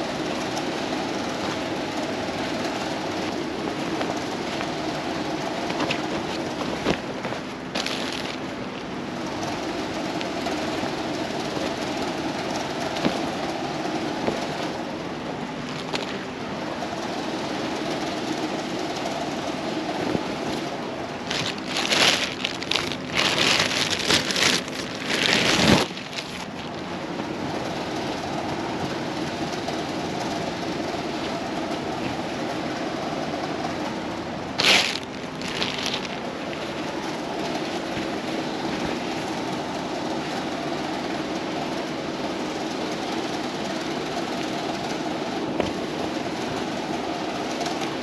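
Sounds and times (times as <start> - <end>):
low mechanical hum: 0.0 - 48.0
clothing rustling: 3.2 - 8.6, 12.9 - 13.4, 15.5 - 16.4, 19.9 - 27.6, 34.6 - 39.4.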